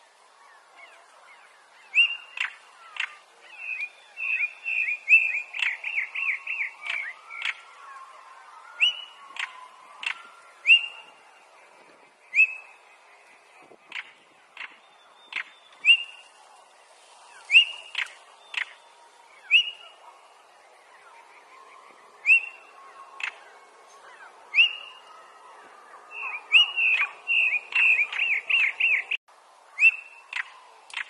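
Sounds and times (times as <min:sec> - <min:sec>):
bird whistles and clicking calls: 0:01.9 - 0:08.0, 0:08.8 - 0:11.0, 0:12.3 - 0:12.7, 0:13.9 - 0:16.2, 0:17.4 - 0:18.8, 0:23.2 - 0:23.4, 0:26.1 - 0:29.2, 0:29.8 - 0:31.0.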